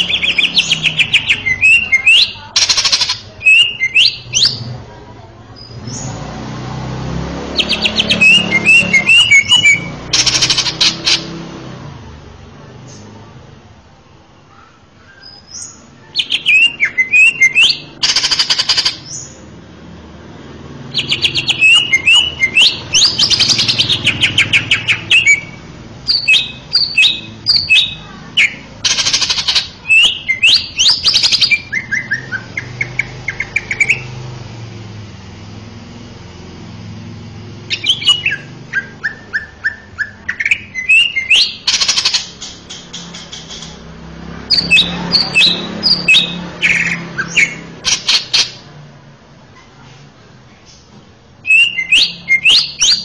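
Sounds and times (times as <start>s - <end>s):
bird singing chirps and whistles: 0.0s - 4.6s, 7.6s - 11.2s, 15.1s - 19.4s, 20.9s - 34.2s, 37.7s - 43.8s, 44.5s - 48.6s, 51.4s - 53.0s.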